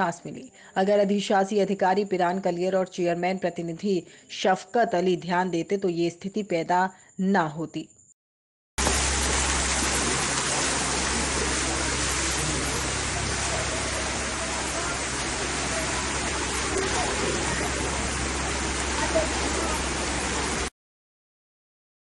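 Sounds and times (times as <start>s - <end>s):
floodwater rushing: 8.8s - 20.7s
low hum: 8.8s - 20.7s.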